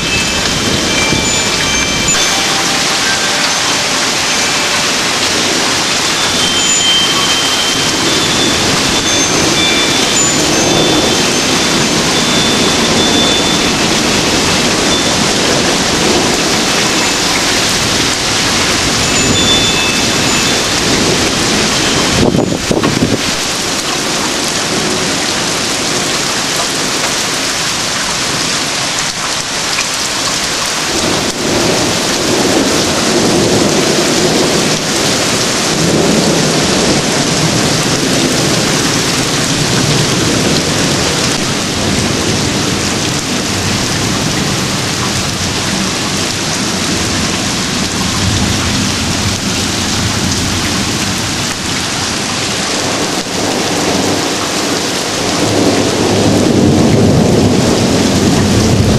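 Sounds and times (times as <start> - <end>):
heavy rain pouring: 0.0 - 58.9
deep rolling thunder: 8.0 - 23.8, 30.9 - 58.9.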